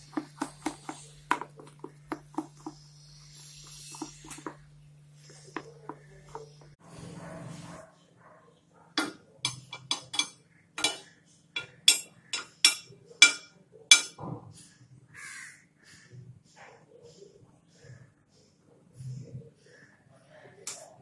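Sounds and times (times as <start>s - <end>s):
spoon clinking against metal pan: 9.0s - 14.2s.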